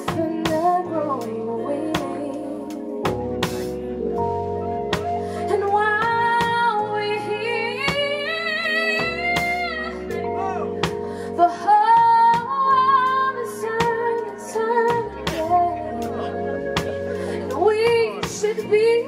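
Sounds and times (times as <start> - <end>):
woman singing with vibrato: 0.0 - 3.1, 5.4 - 10.4, 11.3 - 16.5, 17.3 - 19.0
bass line: 0.0 - 19.0
drum kit: 0.0 - 19.0.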